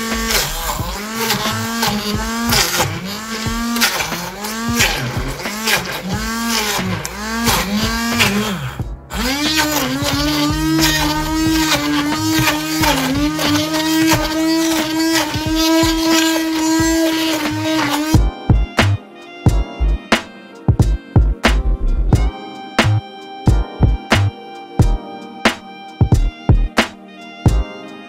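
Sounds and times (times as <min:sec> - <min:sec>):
blender motor: 0:00.0 - 0:18.2.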